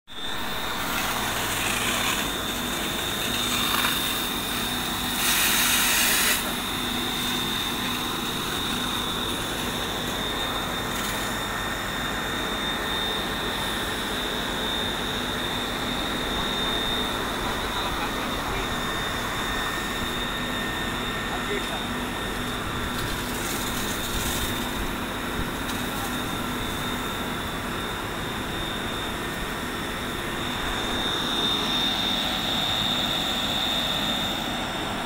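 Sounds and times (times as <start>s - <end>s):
fire hose water jet: 0.3s - 11.5s, 21.3s - 27.0s.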